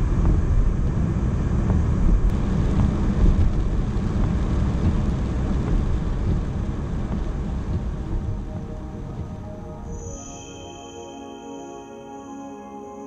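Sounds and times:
tyres rumbling on wet road: 0.0s - 9.6s
rain on windshield: 0.1s - 9.6s.

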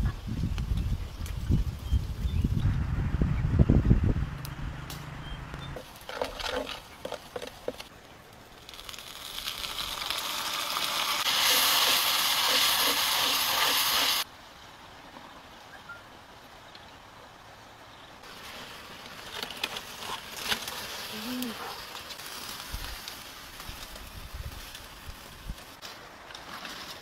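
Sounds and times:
food sizzling in pan: 8.7s - 14.3s.

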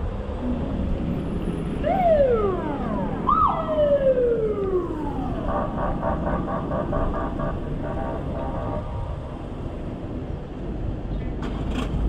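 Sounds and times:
road noise: 0.0s - 12.0s
rapid pulsing siren tone: 1.7s - 9.4s
siren whoops: 1.8s - 7.6s.

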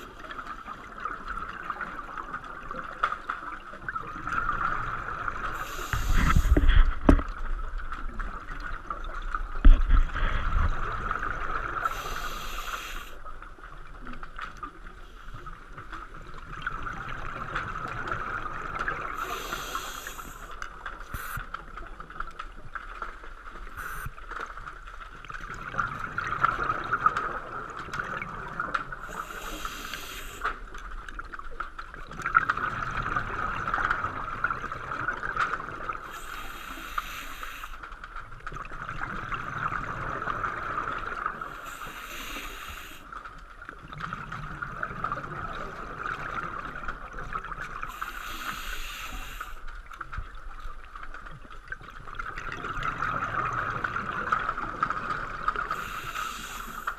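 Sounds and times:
regulator breathing hiss: 5.6s - 6.8s, 11.8s - 13.2s, 19.2s - 21.4s, 23.8s - 24.1s, 29.1s - 30.6s, 36.1s - 37.8s, 41.5s - 43.1s, 47.9s - 49.7s, 55.8s - 56.9s
bubbles gurgling: 25.4s - 29.7s, 32.0s - 36.1s, 38.4s - 41.6s, 43.7s - 48.0s, 51.9s - 56.9s.

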